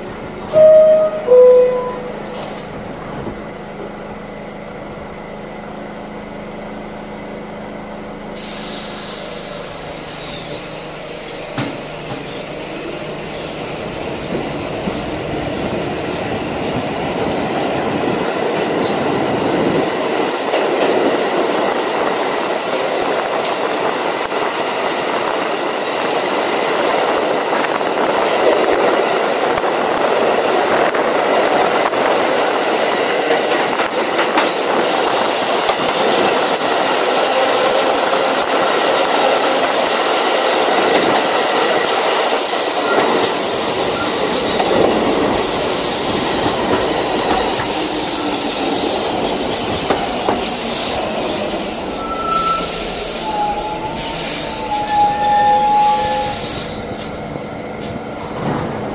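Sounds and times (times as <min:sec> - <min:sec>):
subway train humming: 0:00.0 - 0:58.9
train wheels rumbling on rails: 0:00.0 - 0:58.9
air hiss: 0:08.4 - 0:10.5.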